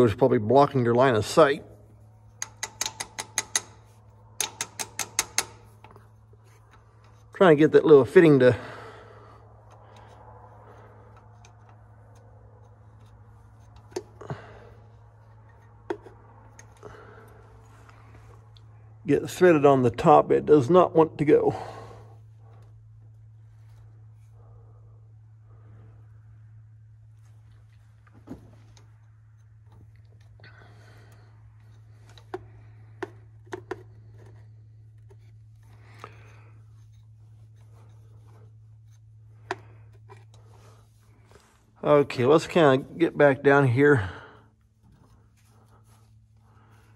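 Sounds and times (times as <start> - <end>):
steady low hum: 0.0 - 46.9
metal fittings clicking: 2.3 - 7.3.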